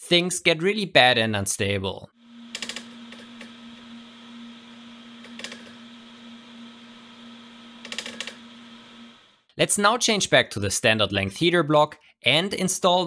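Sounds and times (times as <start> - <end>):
stepper motor whining: 2.2 - 9.4.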